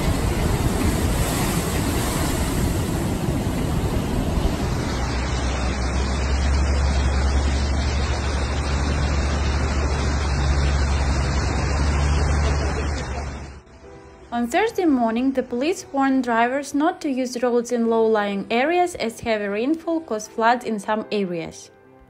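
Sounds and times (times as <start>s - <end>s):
floodwater rushing: 0.0s - 13.6s
storm waves crashing: 0.0s - 13.6s
deep rumble: 0.0s - 13.7s.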